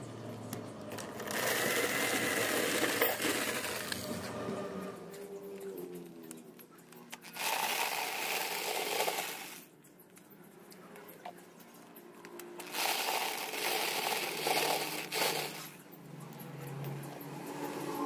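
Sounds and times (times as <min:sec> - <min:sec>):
corn kernels rattling into bucket: 0:01.0 - 0:04.0, 0:07.2 - 0:09.6, 0:12.6 - 0:15.8
electric drill spinning: 0:01.0 - 0:04.3, 0:07.2 - 0:09.7, 0:12.6 - 0:15.8.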